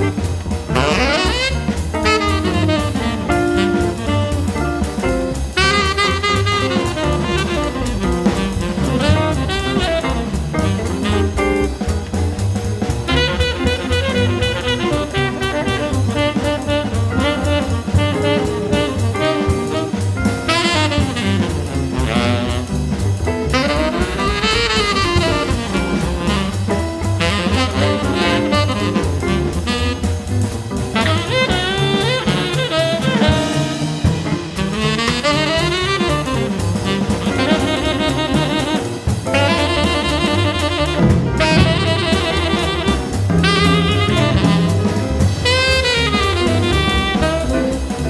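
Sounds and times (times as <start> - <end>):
tenor saxophone: 0.0 - 11.9, 13.1 - 48.0
trumpet: 0.0 - 11.9, 13.0 - 48.0
double bass: 0.0 - 48.0
drum kit: 0.0 - 48.0
piano: 0.0 - 48.0.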